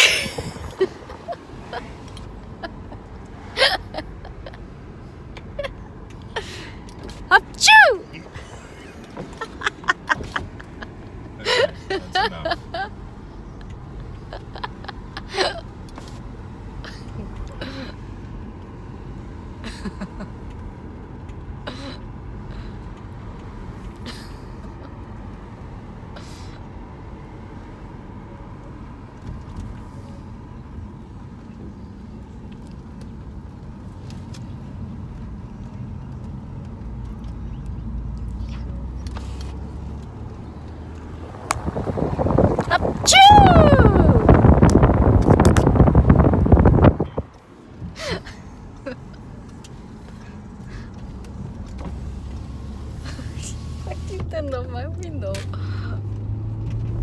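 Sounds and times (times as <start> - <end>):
car road noise: 0.0 - 57.0
people laughing: 8.4 - 12.9.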